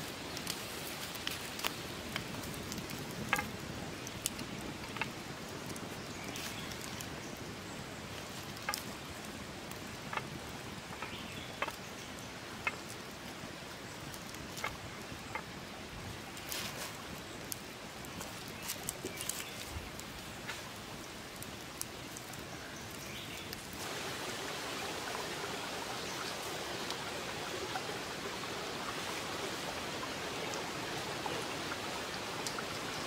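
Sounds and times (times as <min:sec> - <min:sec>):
wood fire crackling: 0:00.0 - 0:33.0.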